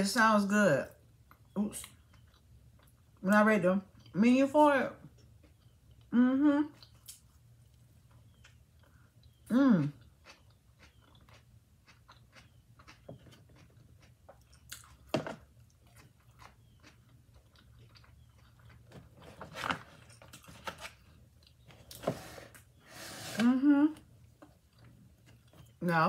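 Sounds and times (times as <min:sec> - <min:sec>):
chewing with wet mouth clicks: 0:01.2 - 0:03.3, 0:05.1 - 0:06.1, 0:06.7 - 0:19.2.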